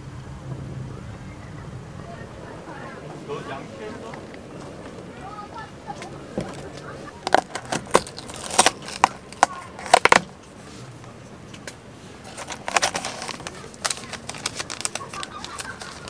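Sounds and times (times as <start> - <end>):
cardboard box clicks: 6.4 - 10.3, 12.3 - 16.0
packaging crinkling and rustling: 6.4 - 10.4, 12.2 - 16.0.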